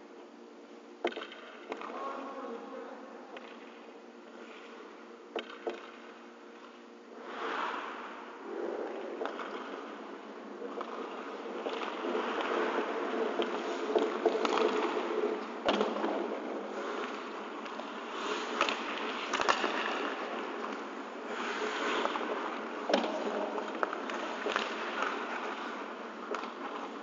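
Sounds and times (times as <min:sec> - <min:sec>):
hockey sticks and puck clacking: 0:01.0 - 0:01.9, 0:05.4 - 0:06.0, 0:10.7 - 0:27.0
skates scraping on ice: 0:10.6 - 0:27.0.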